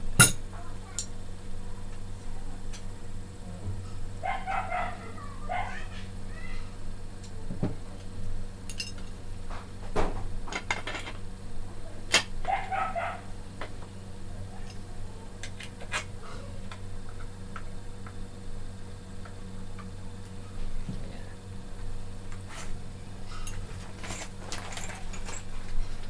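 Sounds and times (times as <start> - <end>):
steady low hum: 0.0 - 26.0
dog barking: 4.2 - 5.9, 12.5 - 13.3.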